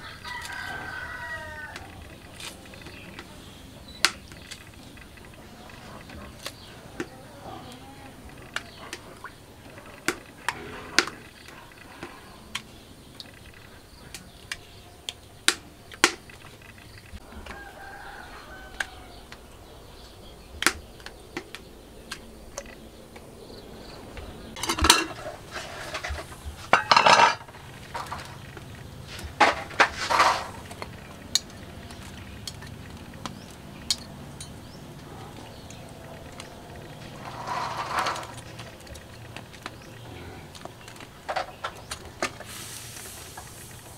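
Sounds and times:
vegetable stems snapping: 0:20.6 - 0:23.3.

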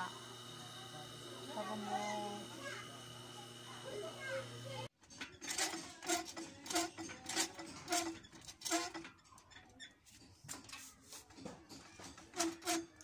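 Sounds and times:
sewing machine knocking: 0:05.1 - 0:09.1.

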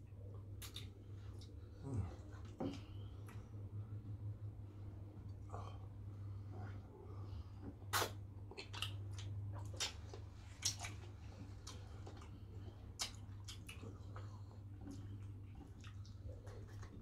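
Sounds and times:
steady low hum: 0:00.0 - 0:17.0
wet chewing smacks: 0:00.5 - 0:01.6, 0:07.8 - 0:17.0.

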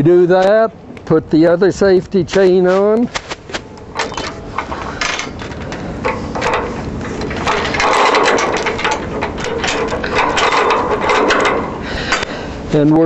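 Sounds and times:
safety chain rattling and clinking: 0:03.8 - 0:12.3.

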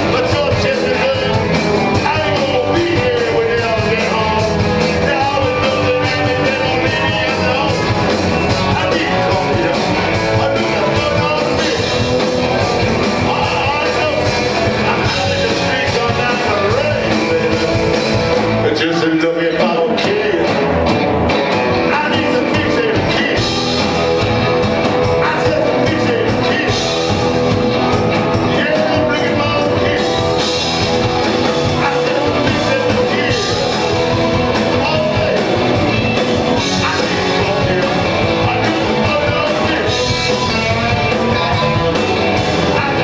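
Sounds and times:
male singer: 0:00.0 - 0:20.9, 0:21.7 - 0:43.0
rock band playing: 0:00.0 - 0:43.0.

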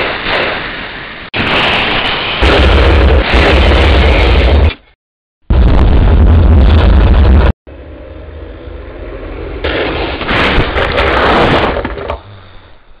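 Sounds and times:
cartoon explosion: 0:01.4 - 0:04.8, 0:09.6 - 0:12.3.

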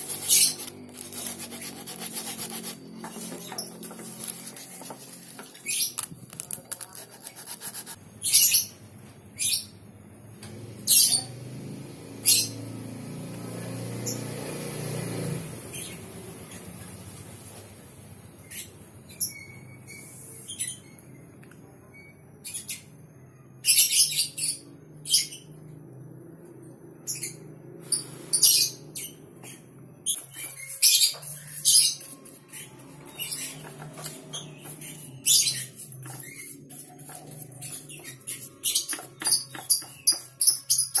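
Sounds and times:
chisel scraping wood: 0:00.0 - 0:08.0, 0:30.1 - 0:41.0.

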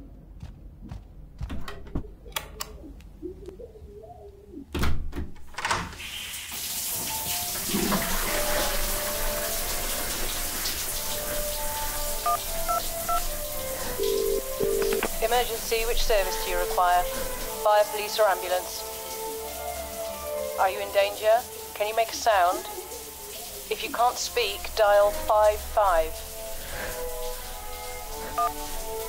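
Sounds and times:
shower spraying on tiled floor: 0:05.8 - 0:29.0
phone keypad beeps: 0:12.2 - 0:13.2, 0:14.1 - 0:15.2.

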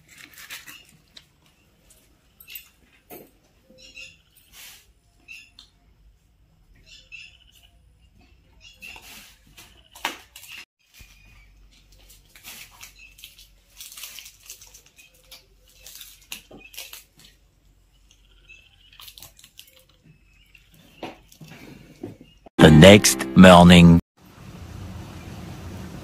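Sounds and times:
crisp bread tearing and crunching: 0:00.0 - 0:01.2, 0:12.1 - 0:17.4, 0:18.9 - 0:20.0.

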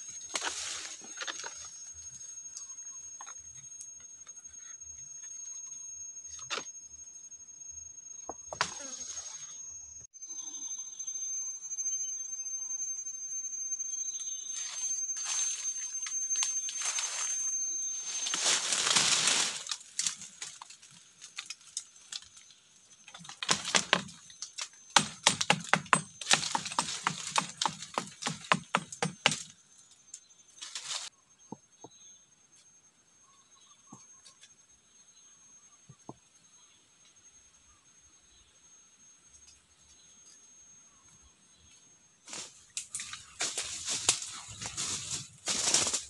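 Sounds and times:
dry leaves and twigs rustling: 0:00.0 - 0:04.7, 0:14.4 - 0:29.4, 0:30.5 - 0:31.1, 0:42.2 - 0:46.0
steady high-pitched tone: 0:09.2 - 0:19.8
twigs cracking and crunching: 0:18.1 - 0:29.4, 0:42.3 - 0:46.0.

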